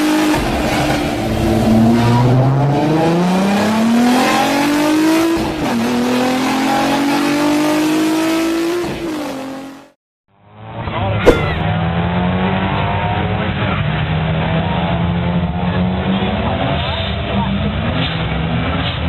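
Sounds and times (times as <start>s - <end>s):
car engine accelerating hard: 0.0s - 9.9s, 10.6s - 19.0s.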